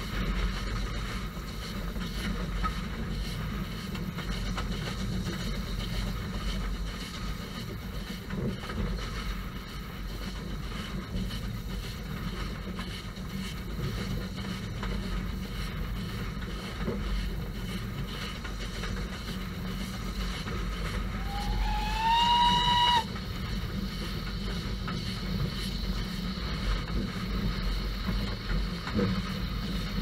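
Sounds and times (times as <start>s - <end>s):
low rumble of moving train: 0.0s - 30.0s
steam locomotive whistle: 21.0s - 23.2s.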